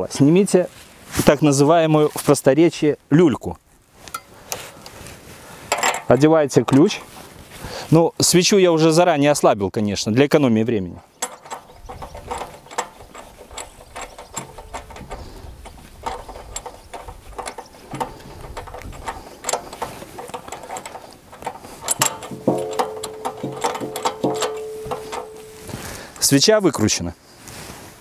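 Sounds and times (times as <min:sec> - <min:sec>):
wrench metallic clicks and scrapes: 0:04.0 - 0:07.2, 0:11.0 - 0:26.4.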